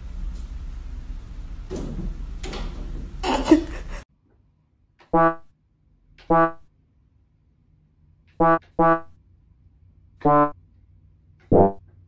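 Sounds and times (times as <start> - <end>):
electronic keyboard notes: 5.1 - 5.5, 6.2 - 6.6, 8.4 - 9.1, 10.2 - 10.5, 11.5 - 11.8.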